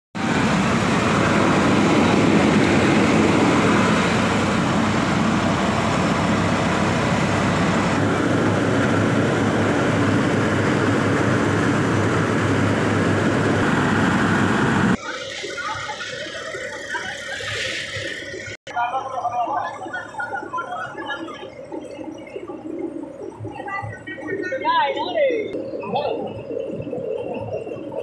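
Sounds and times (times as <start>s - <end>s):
tractor engine running: 0.2s - 16.4s
rice huller mechanical din: 0.2s - 22.2s.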